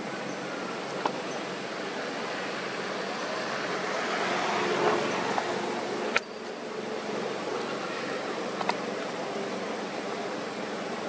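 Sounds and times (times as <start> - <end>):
rushing background hiss: 0.0 - 11.0.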